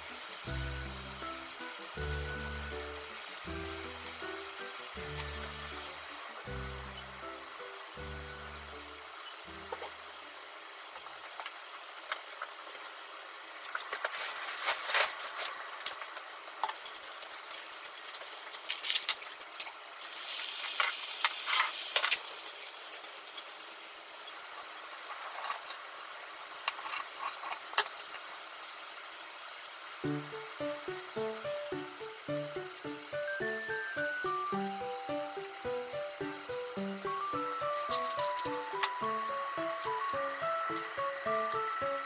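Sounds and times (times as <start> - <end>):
oil sizzling in a hot pan: 0.0 - 42.0.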